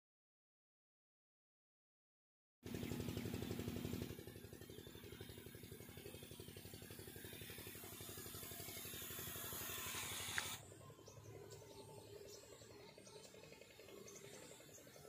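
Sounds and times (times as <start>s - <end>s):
sprayer pump pulsing: 2.7s - 15.0s
spray hissing: 7.2s - 10.6s.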